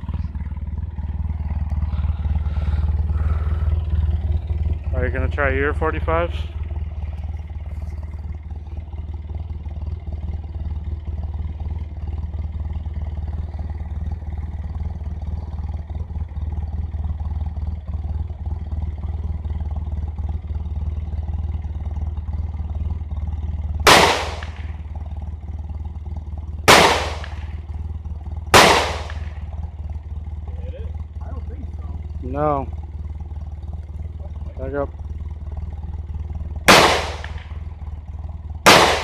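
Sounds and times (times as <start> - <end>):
steady low rumble: 0.0 - 39.0
pistol shots with echo: 23.9 - 24.6, 26.7 - 27.5, 28.6 - 29.3, 36.7 - 37.5, 38.7 - 39.0.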